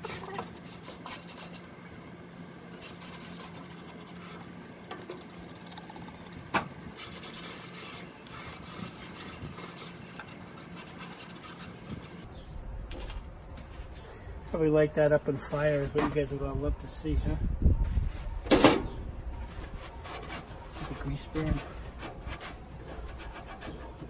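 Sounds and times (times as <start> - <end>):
paper towels scrubbing metal: 2.6 - 6.0, 6.9 - 12.2, 19.4 - 24.0.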